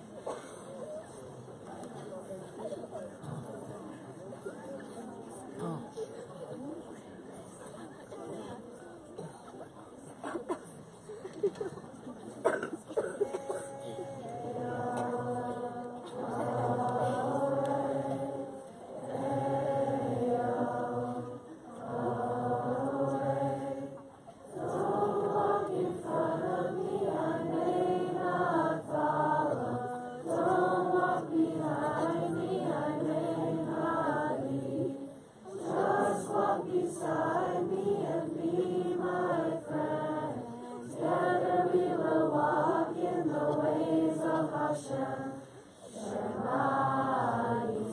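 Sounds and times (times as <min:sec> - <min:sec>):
children singing together: 0:13.0 - 0:47.9.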